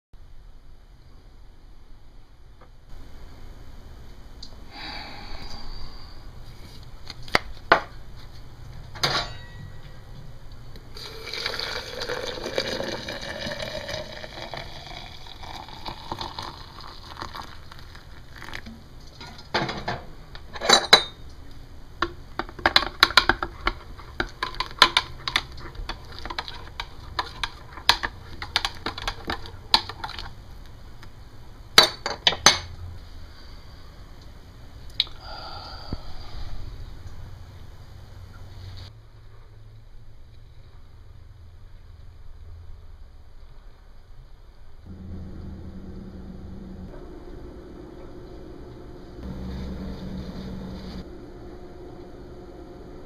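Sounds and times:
hot water pouring into glass: 11.0s - 18.7s.

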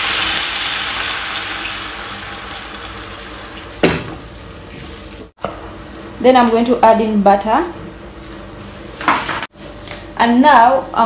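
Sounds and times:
broth hissing in hot pan: 0.0s - 5.3s.

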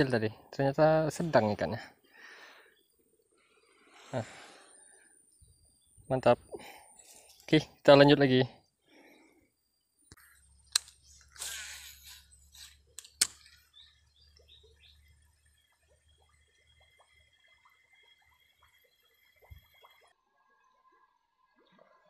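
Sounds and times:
sharp reel clicks: 10.6s - 13.7s.

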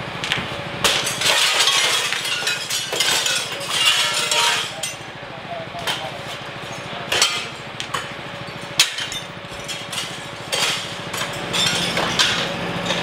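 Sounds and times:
engine humming: 0.0s - 13.0s
sharp knocks and cracks: 0.2s - 4.8s, 8.8s - 13.0s.

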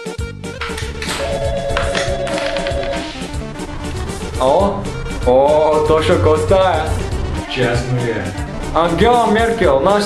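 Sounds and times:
background music: 0.0s - 10.0s
telephone warbling ring: 1.2s - 3.4s.

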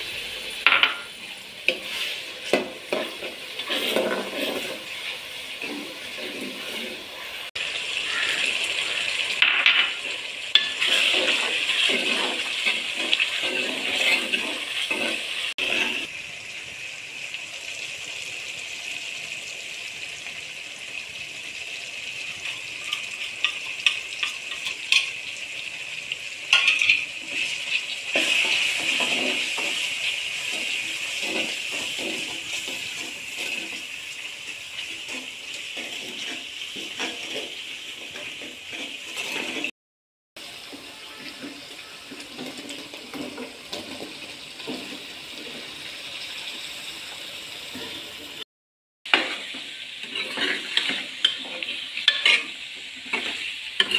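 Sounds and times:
onions sizzling in hot oil: 0.0s - 39.7s, 40.4s - 48.4s, 49.1s - 53.9s
ladle scraping and knocking pot: 1.7s - 7.0s, 49.1s - 52.5s.

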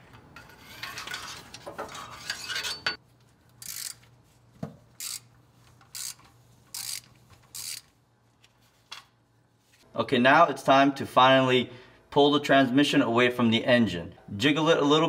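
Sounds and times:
socket ratchet clicking: 5.0s - 5.3s, 5.9s - 7.9s.

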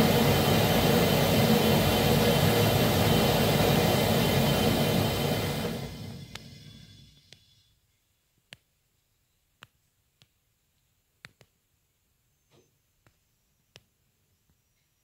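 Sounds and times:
gas burner rushing: 0.0s - 7.3s.

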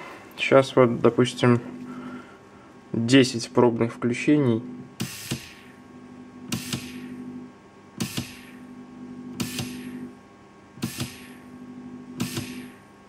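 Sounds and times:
small electric motor humming: 4.5s - 10.2s, 10.8s - 12.9s
motor clicks: 5.0s - 5.7s, 6.5s - 7.1s, 8.0s - 8.6s, 9.3s - 10.1s, 10.8s - 11.4s, 12.2s - 12.8s.

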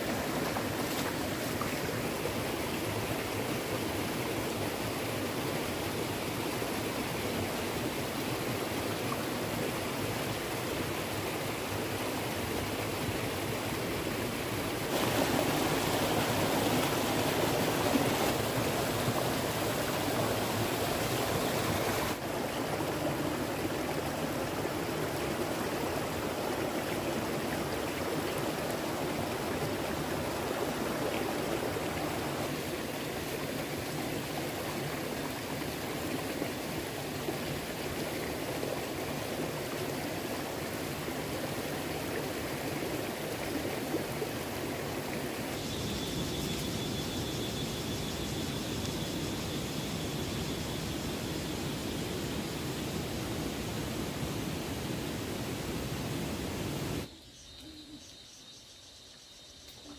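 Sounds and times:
rushing water: 0.0s - 57.1s
stream water running: 0.0s - 59.9s.

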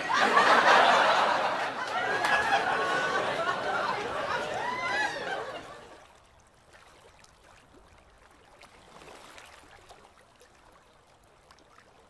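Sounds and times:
water trickling and lapping: 0.0s - 12.0s.

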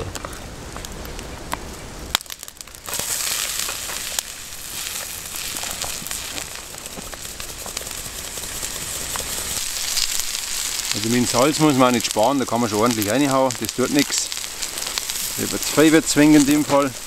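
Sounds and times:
oil sizzling and crackling in a pan: 1.4s - 17.0s.

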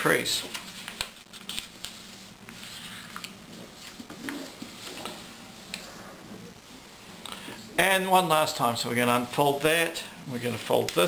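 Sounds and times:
paper rustling being folded: 0.1s - 5.3s
faint paper crackles: 0.4s - 5.2s.

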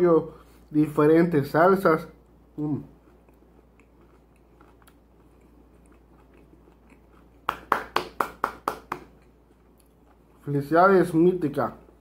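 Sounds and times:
soft chewing with mouth clicks: 2.2s - 7.7s, 9.1s - 10.5s
loud hand claps: 7.5s - 9.1s.

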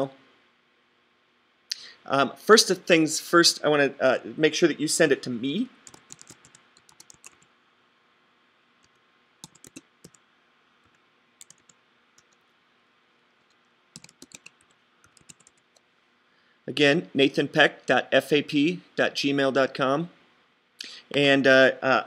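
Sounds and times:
faint keyboard typing: 5.8s - 7.5s, 8.8s - 10.2s, 10.8s - 12.6s, 13.4s - 15.9s.

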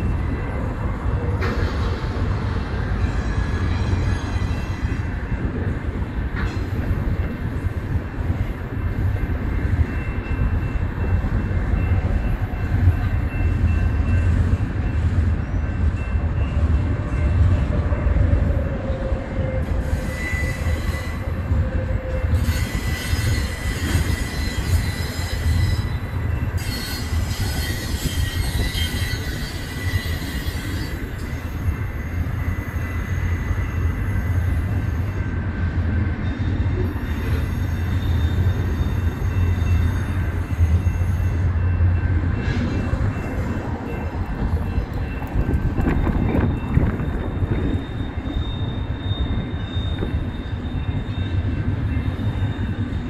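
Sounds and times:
steel wheels rumbling on rail: 0.0s - 53.0s
wheel squeals: 18.8s - 35.3s, 36.2s - 41.8s, 45.8s - 53.0s.

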